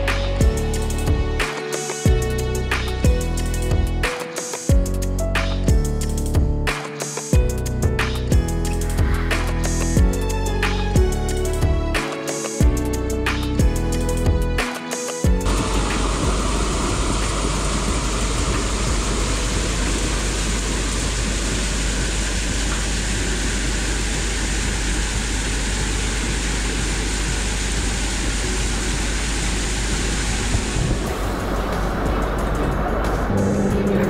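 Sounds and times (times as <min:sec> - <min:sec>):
constant low rumble: 0:15.4 - 0:34.0
water gushing from pipe: 0:15.5 - 0:32.5.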